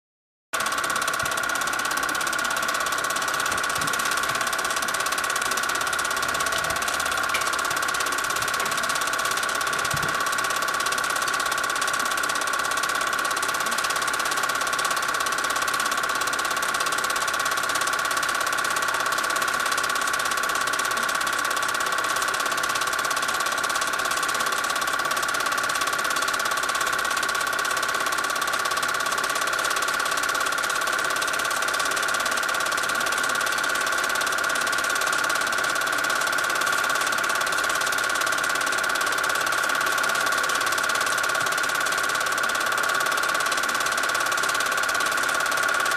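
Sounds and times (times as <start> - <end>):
film projector whirring: 0.6 - 45.9.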